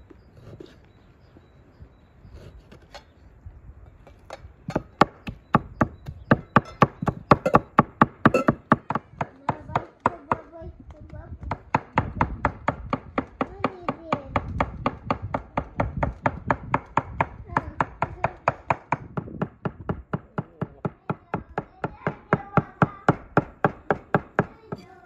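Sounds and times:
knife chopping meat on wooden board: 4.7s - 10.4s.

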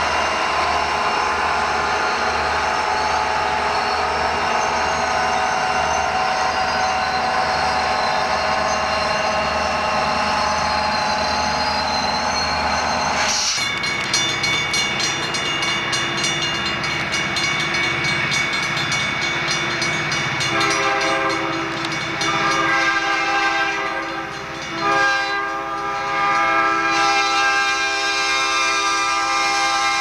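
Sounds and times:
freight train rolling to a stop: 0.0s - 30.0s
locomotive air horn blasts: 20.5s - 21.6s, 22.2s - 30.0s.

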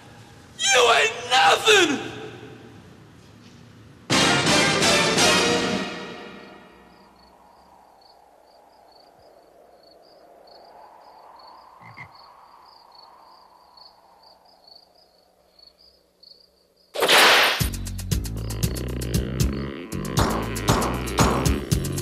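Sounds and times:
crickets chirping: 6.3s - 22.0s.

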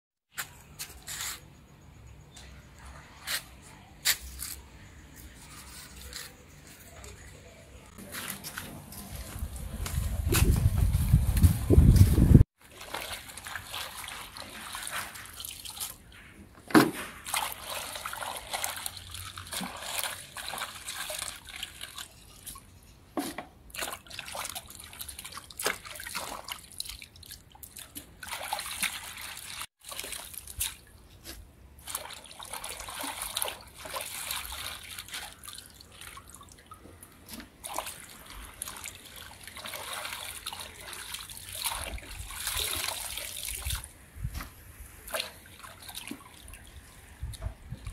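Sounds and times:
water sloshing and dripping: 12.5s - 47.9s.

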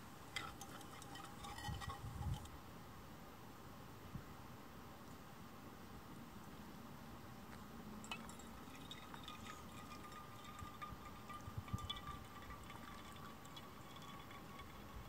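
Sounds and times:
thin ringing tone: 0.3s - 2.5s, 8.0s - 15.0s
water trickling into dripper: 0.3s - 2.5s, 8.0s - 15.0s.

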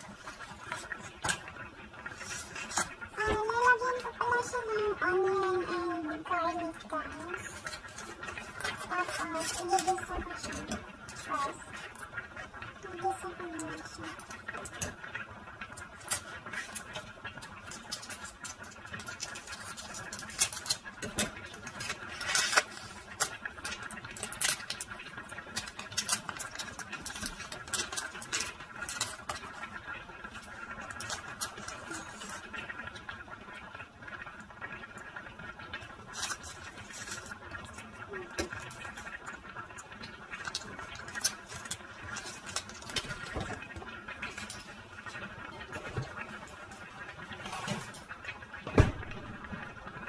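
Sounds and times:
plastic packaging crinkling: 17.7s - 29.7s, 40.3s - 45.2s.

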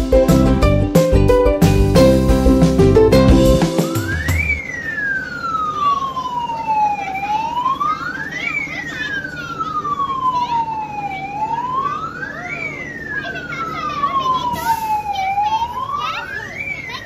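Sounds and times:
fire engine siren wailing: 3.6s - 17.0s.

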